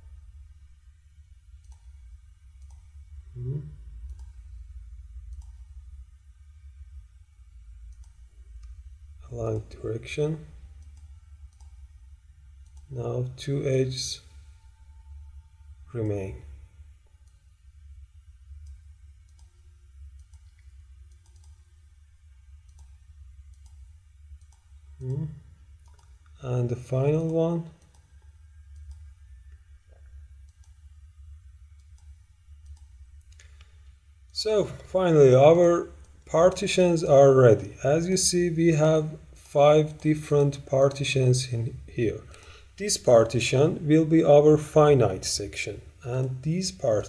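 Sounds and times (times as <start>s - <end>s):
low electrical hum: 0.0s - 47.0s
computer mouse clicks: 1.6s - 2.0s, 2.6s - 3.0s, 4.0s - 4.4s, 5.2s - 5.8s, 7.8s - 8.8s, 10.8s - 11.9s, 12.6s - 12.9s, 18.6s - 21.7s, 22.6s - 25.2s, 25.8s - 26.4s, 27.2s - 29.1s, 31.7s - 33.9s
short low vocal sound: 3.3s - 4.2s.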